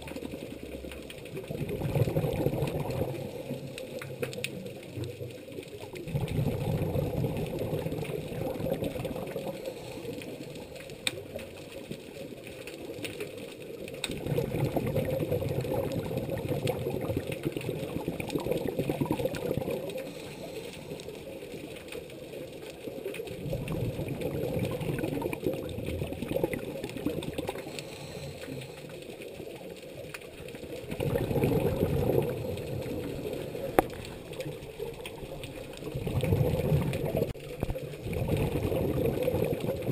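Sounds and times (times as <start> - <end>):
regulator exhaled bubbles gurgling: 0.0 - 39.9
regulator inhalation: 19.9 - 21.1, 27.5 - 28.9.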